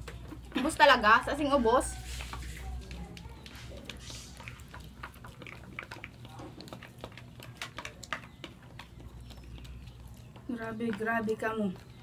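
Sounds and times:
chewing: 0.0s - 12.0s
noodles slurped: 2.0s - 10.5s.

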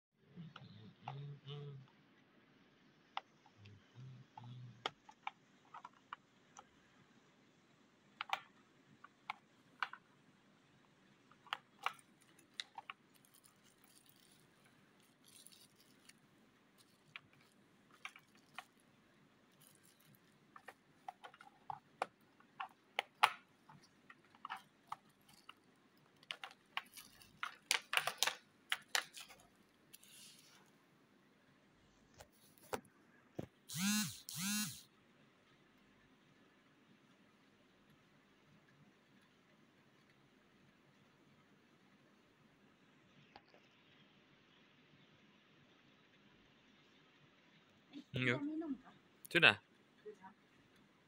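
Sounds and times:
bubble wrap crinkling: 11.5s - 30.7s
plastic boxes clicking open: 20.6s - 29.4s.

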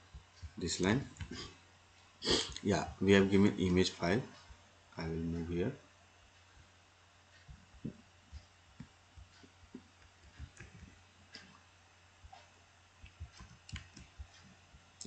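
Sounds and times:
faint steady low hum: 0.0s - 15.0s.

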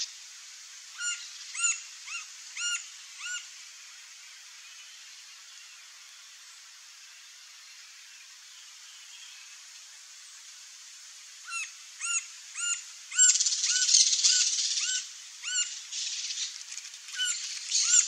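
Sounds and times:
woodpecker squeaky calls: 11.5s - 15.7s, 17.2s - 18.0s.

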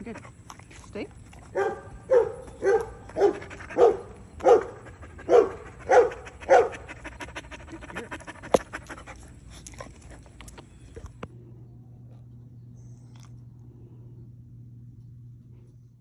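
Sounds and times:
dog barking: 1.5s - 6.9s.

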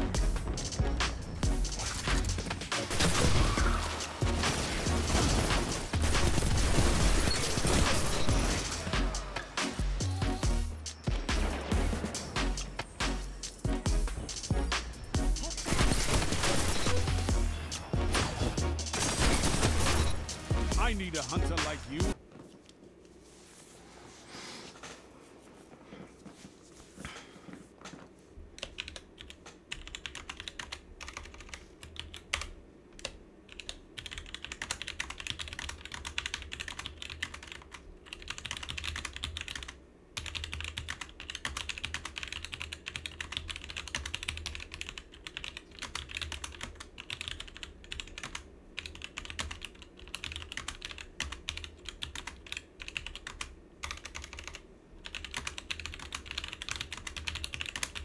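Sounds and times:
mechanical keyboard typing: 28.6s - 58.0s.

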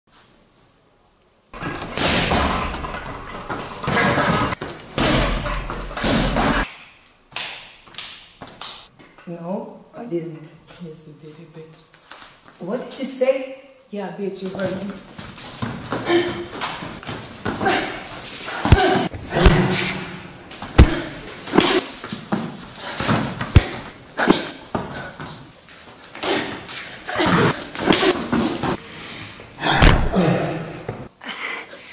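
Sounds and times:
kicks slamming punching bag: 1.6s - 6.7s, 18.6s - 22.4s, 23.0s - 24.9s, 27.2s - 28.8s.

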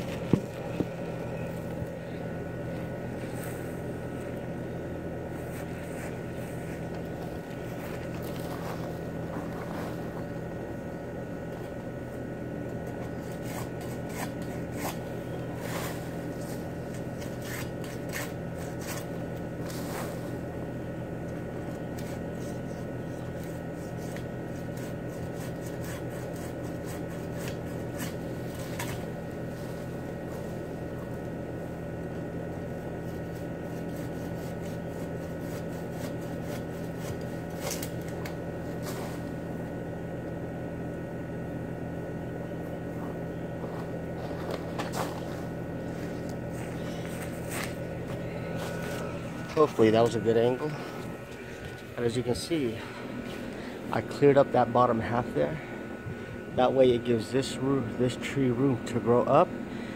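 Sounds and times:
steady mechanical hum: 0.0s - 59.9s
pole pruner clicking and scraping: 12.7s - 19.9s, 33.4s - 39.2s.

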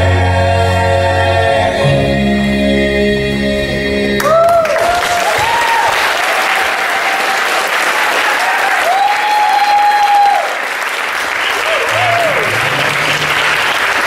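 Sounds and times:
choir singing: 0.0s - 4.4s
audience applause: 4.2s - 14.0s
audience cheering and whooping: 4.2s - 14.0s.

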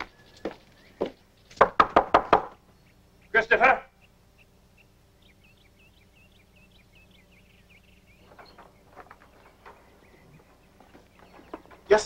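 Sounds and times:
footsteps on stone paving: 0.0s - 1.2s, 8.2s - 12.0s
songbird chirping: 0.0s - 12.0s.

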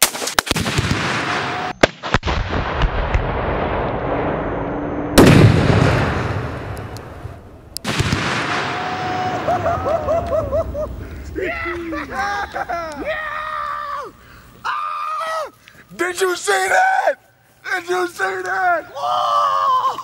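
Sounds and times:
rifle shot: 0.0s - 4.4s, 5.2s - 7.2s, 7.8s - 8.9s
rumbling explosion boom: 2.1s - 11.4s.

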